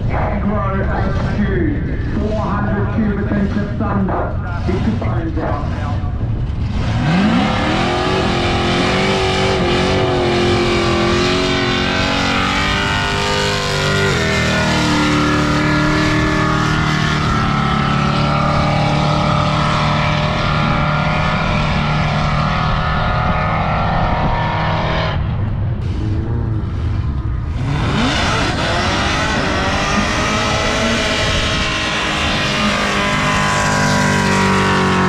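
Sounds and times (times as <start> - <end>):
race car engine revving: 0.0 - 35.0
tyres spinning in burnout: 26.3 - 35.0.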